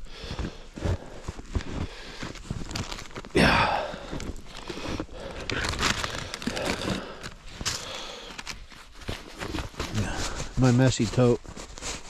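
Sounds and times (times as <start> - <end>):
footsteps crunching in snow: 0.0 - 12.0
clothing rustling: 4.3 - 12.0.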